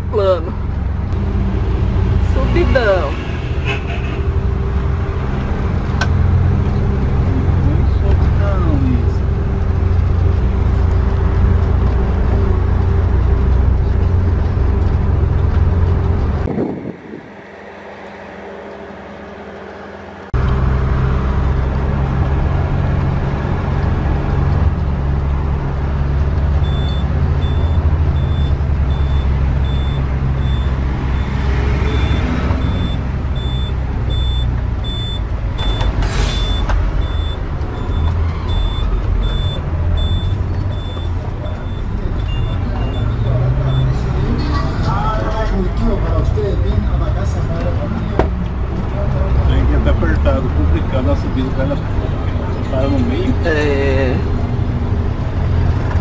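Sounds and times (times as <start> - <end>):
engine rumbling under load: 0.0 - 56.0
short high beeps: 26.6 - 43.1.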